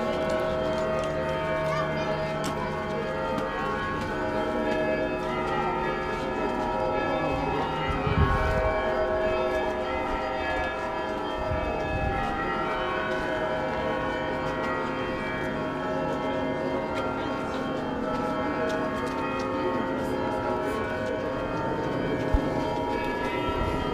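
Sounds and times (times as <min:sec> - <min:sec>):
church bells ringing: 0:00.0 - 0:23.9.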